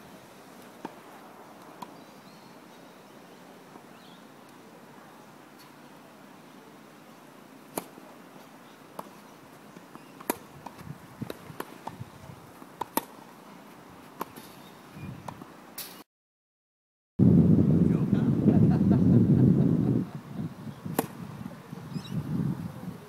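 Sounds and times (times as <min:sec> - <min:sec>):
tennis balls struck by racquets: 0:00.7 - 0:02.0, 0:07.7 - 0:08.0, 0:08.9 - 0:13.2, 0:20.9 - 0:21.2.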